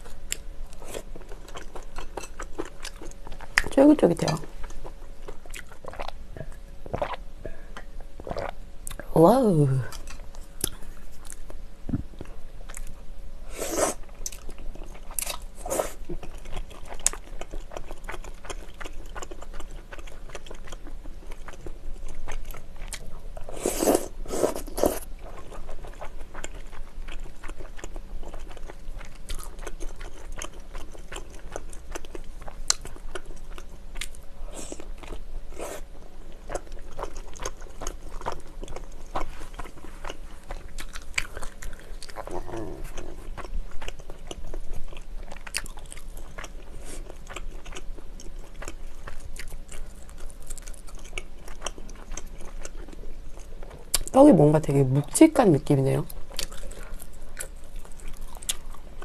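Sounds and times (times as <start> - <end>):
wet chewing and smacking: 0.0 - 7.2, 14.0 - 23.5, 24.5 - 35.3, 36.3 - 54.2, 56.1 - 59.0
slurping noodles: 13.5 - 14.0, 23.5 - 25.0.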